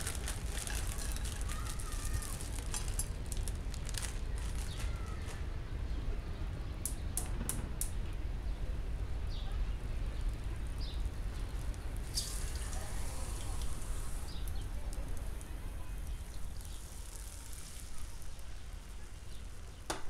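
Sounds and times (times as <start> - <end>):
vegetables crackling in frying pan: 0.0 - 5.5, 10.2 - 20.0.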